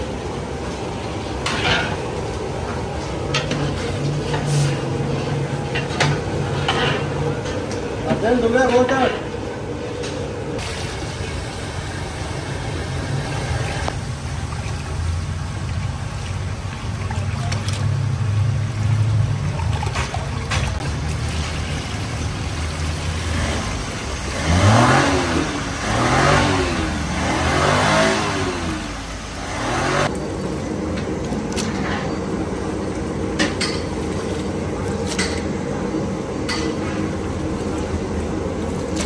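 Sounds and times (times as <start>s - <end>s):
engine running and revving: 22.8s - 30.2s.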